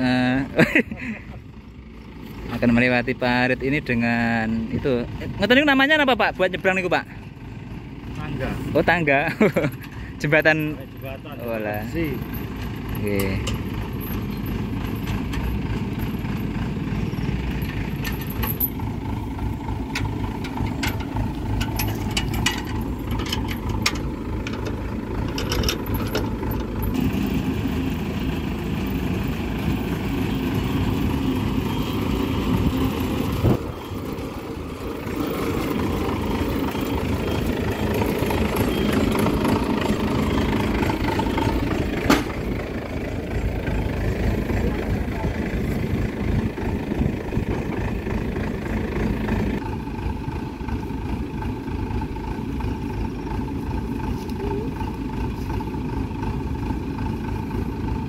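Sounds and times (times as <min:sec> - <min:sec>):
combine harvester engine running: 0:00.0 - 0:58.0
clicks and clanks: 0:17.6 - 0:18.9, 0:19.9 - 0:27.0.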